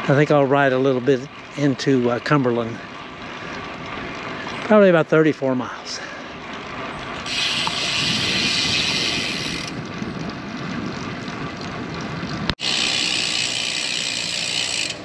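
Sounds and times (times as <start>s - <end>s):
bike tyres rolling on concrete: 0.0s - 15.0s
freewheel ticking: 7.2s - 15.0s.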